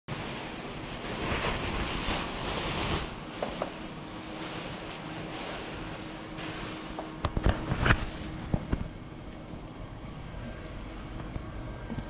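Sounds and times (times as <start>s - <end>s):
plastic cover rustling and crinkling: 0.1s - 9.0s
faint steady hum: 0.1s - 12.0s.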